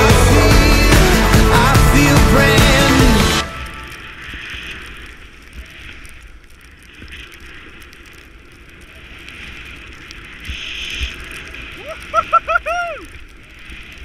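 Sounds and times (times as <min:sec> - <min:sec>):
skis hissing through snow: 0:03.3 - 0:14.0.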